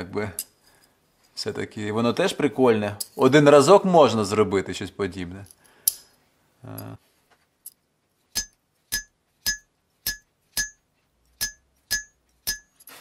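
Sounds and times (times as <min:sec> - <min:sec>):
hammer tapping chisel on steel: 0:08.4 - 0:12.9.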